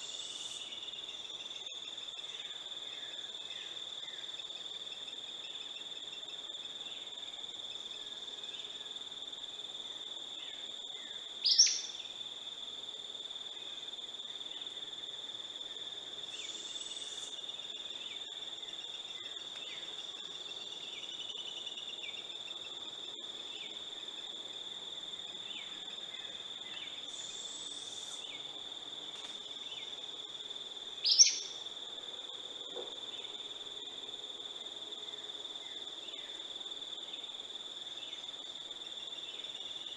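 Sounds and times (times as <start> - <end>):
insects droning: 0.0 - 39.9
sharp bird calls: 31.1 - 31.6.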